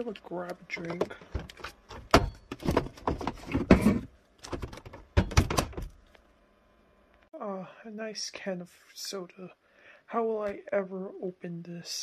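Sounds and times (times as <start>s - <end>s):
fridge door knocks and clunks: 2.0s - 5.9s.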